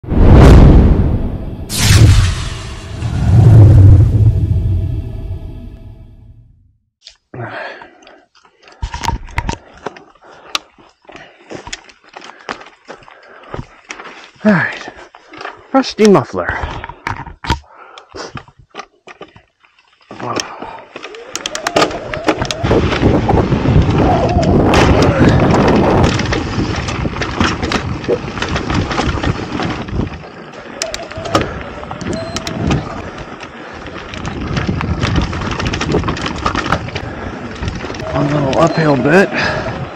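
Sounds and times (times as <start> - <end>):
mountain bike rattling over roots: 19.2 - 39.9.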